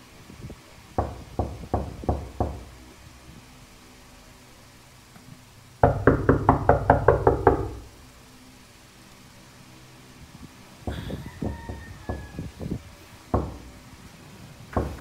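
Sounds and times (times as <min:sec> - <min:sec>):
knocking on a door: 0:01.0 - 0:02.7, 0:05.8 - 0:07.9, 0:10.9 - 0:13.7, 0:14.7 - 0:15.0.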